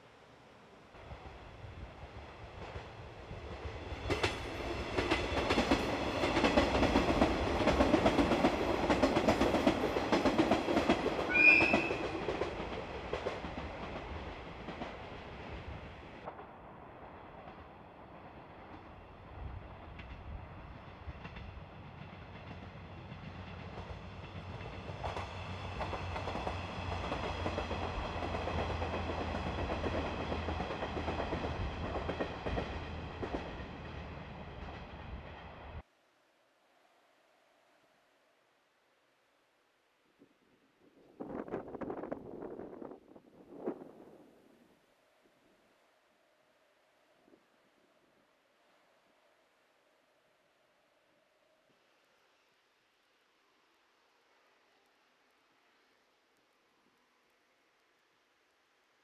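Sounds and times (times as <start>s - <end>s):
train wheels clattering on rails: 2.5s - 16.6s, 18.3s - 35.6s.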